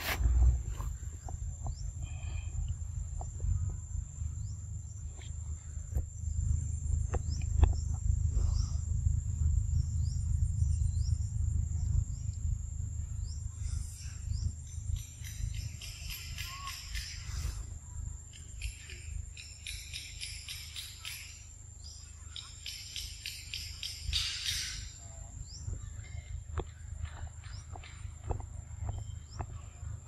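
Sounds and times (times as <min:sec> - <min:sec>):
low rumble on microphone: 0:00.0 - 0:16.6, 0:24.8 - 0:30.0
high-pitched insect drone: 0:08.4 - 0:26.0.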